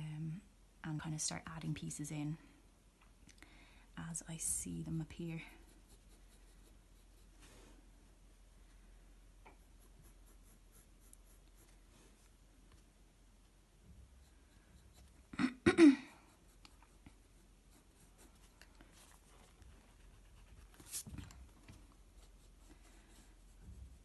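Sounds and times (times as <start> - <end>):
pencil scratching on paper: 5.5 - 7.4, 9.6 - 12.3, 14.1 - 15.3, 16.2 - 21.1, 22.0 - 24.0.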